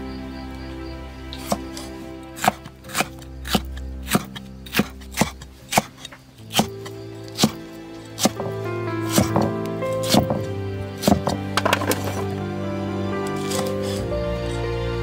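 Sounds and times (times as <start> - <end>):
cleaver chopping on wooden block: 1.4 - 6.8, 7.4 - 7.6, 8.2 - 12.2.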